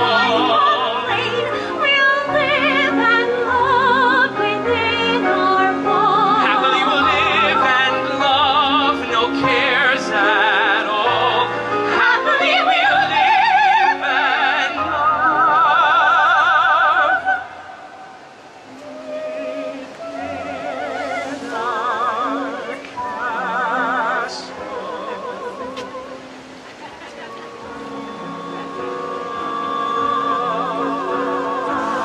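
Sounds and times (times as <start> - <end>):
woman and man singing duet: 0.0 - 17.9, 18.6 - 32.0.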